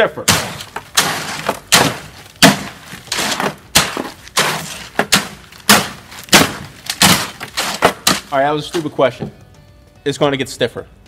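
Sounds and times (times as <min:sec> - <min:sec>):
metal blade scraping concrete: 0:00.4 - 0:02.1, 0:02.9 - 0:05.0, 0:07.0 - 0:08.9.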